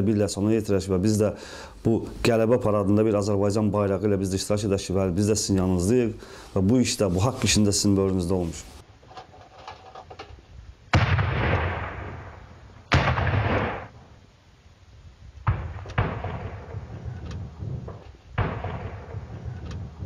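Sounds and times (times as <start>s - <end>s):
smaller gunfire cracks: 10.9s - 14.0s, 15.4s - 20.0s
gunshots with echo: 11.0s - 13.9s, 15.5s - 20.0s.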